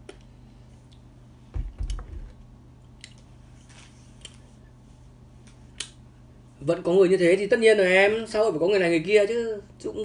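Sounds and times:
dull knocks: 1.5 - 2.4.

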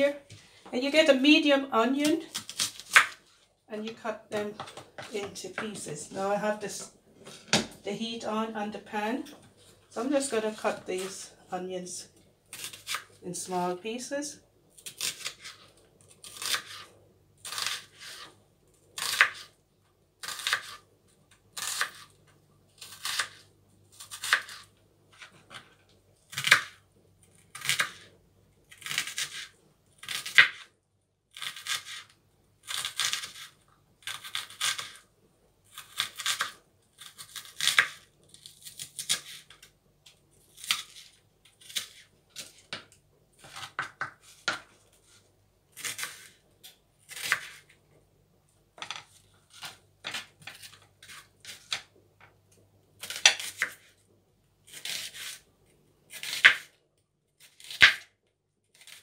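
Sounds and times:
knife dicing onion on cutting board: 20.2 - 20.8.

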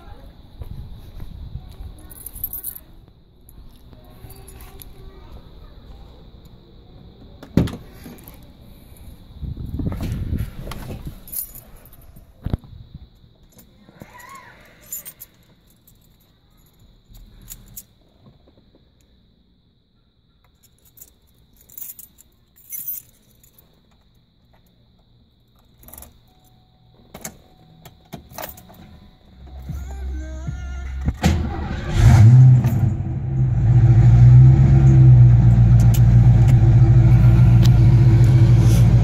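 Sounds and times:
car keys jangling: 2.0 - 2.9, 10.7 - 12.2, 14.8 - 18.0, 20.6 - 24.7, 25.4 - 29.7.

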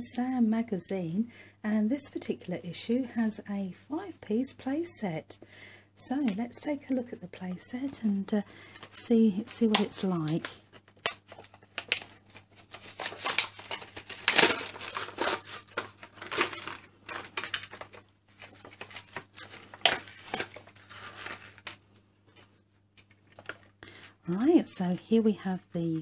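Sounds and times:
plastic packet crinkling and tearing: 9.5 - 21.8.

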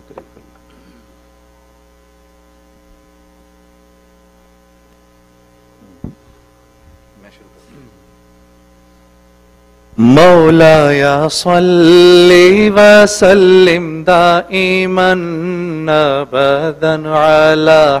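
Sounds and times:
electrical mains hum: 0.0 - 18.0
microphone handling bump: 5.8 - 7.1.

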